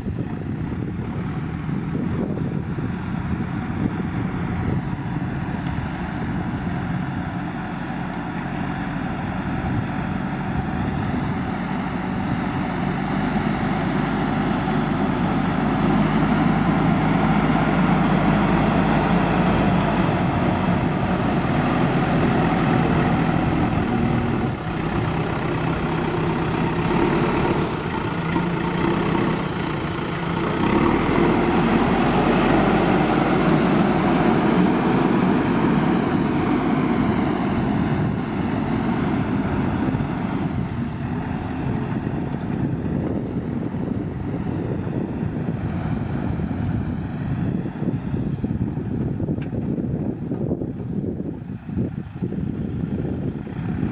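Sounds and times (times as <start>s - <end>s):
diesel engine running under load: 0.0s - 53.9s
loader bucket pushing soil: 7.0s - 44.7s.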